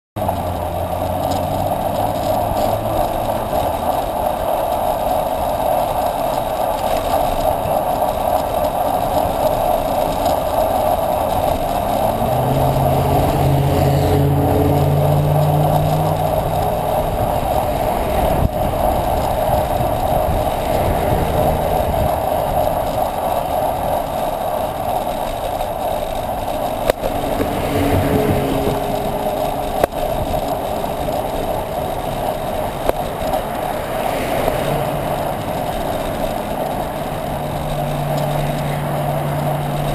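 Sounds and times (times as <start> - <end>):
truck engine passing: 0.2 - 6.0, 9.5 - 39.9
road noise: 0.2 - 39.9
rushing wind: 0.2 - 39.9
vehicles passing close by: 0.2 - 39.9.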